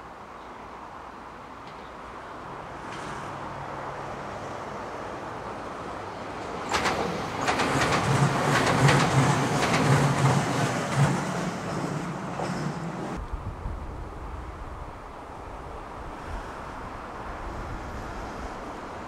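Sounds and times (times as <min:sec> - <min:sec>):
electric train rumble: 0:05.3 - 0:19.0
train wheels clacking over rail joints: 0:06.5 - 0:13.2.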